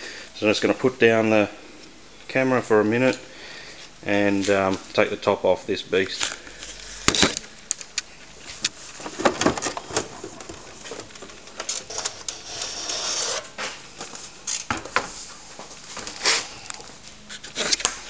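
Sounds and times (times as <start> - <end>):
plastic cover scraping slide: 8.8 - 13.8.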